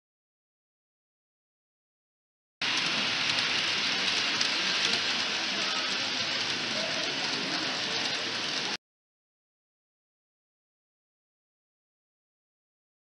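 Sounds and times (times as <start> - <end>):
model train running hiss: 2.6 - 8.8.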